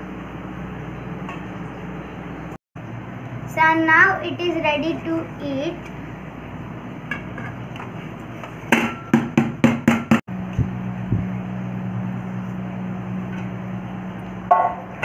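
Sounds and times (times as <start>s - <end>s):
steady low hum: 0.0s - 9.0s, 10.0s - 15.0s.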